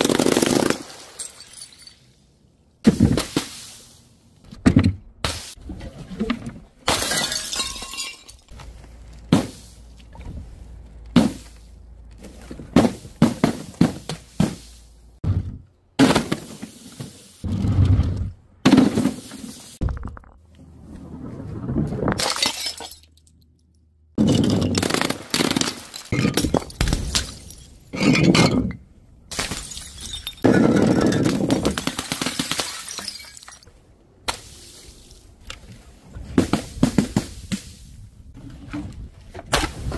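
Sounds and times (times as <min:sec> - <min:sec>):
glass jars smashing on tiles: 0:01.0 - 0:02.1, 0:06.9 - 0:08.5, 0:22.2 - 0:23.2, 0:29.4 - 0:31.4, 0:32.4 - 0:33.7
glass shattering and clinking: 0:01.0 - 0:02.2, 0:06.9 - 0:08.5, 0:22.2 - 0:23.3, 0:25.6 - 0:31.4, 0:32.4 - 0:33.7.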